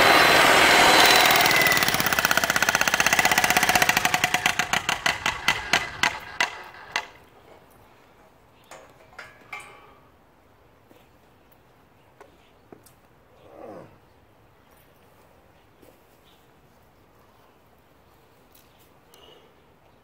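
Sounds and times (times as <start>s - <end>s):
jackhammer chiselling concrete: 0.0s - 7.2s.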